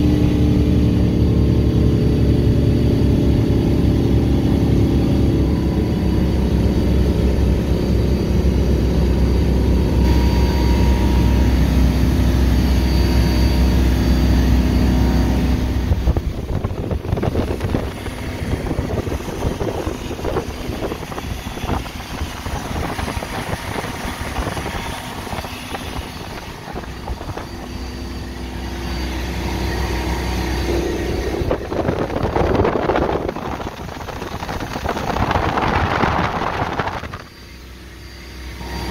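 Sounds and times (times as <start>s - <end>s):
boat engine running: 0.0s - 38.9s
wind buffeting microphone: 15.3s - 28.4s, 29.7s - 37.3s.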